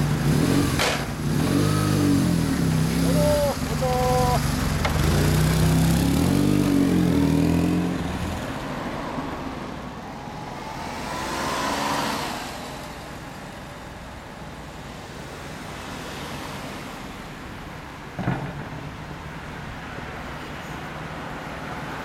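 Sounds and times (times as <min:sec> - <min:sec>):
motorcycle engine pulling away: 0:00.0 - 0:08.4
street traffic noise: 0:00.0 - 0:22.0.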